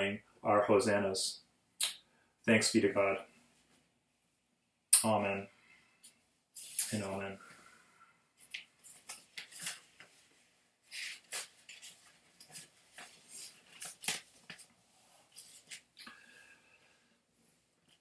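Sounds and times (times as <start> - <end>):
paper pages rustling: 8.4 - 16.0.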